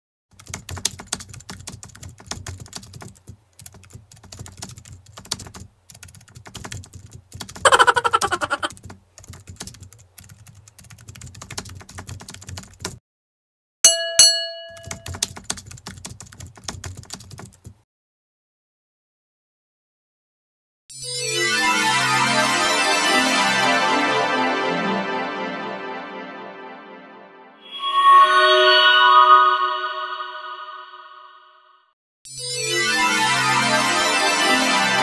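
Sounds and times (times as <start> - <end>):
bright bell-like dings: 13.9 - 15.1.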